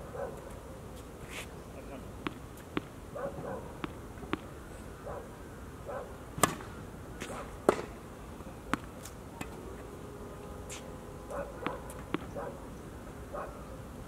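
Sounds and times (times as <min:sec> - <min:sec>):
tennis ball bouncing on court: 0:02.2 - 0:03.0, 0:03.8 - 0:04.5, 0:07.6 - 0:07.9, 0:08.7 - 0:09.6, 0:11.6 - 0:12.4
racket hitting ball: 0:03.8 - 0:04.5, 0:06.4 - 0:08.0, 0:08.7 - 0:09.6, 0:11.6 - 0:12.4.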